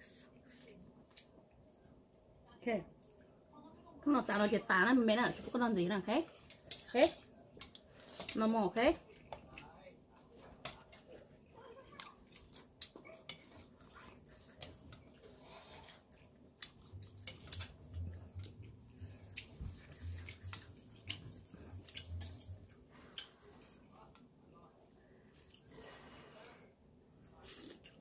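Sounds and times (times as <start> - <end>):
wet chewing clicks and smacks: 16.1 - 22.5.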